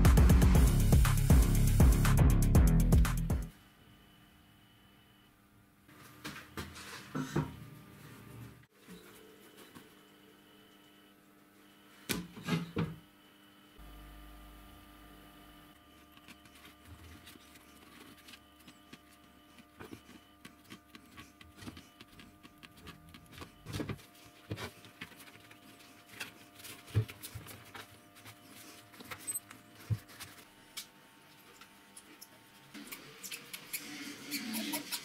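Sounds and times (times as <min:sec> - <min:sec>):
faint steady hum: 0:09.0 - 0:32.7.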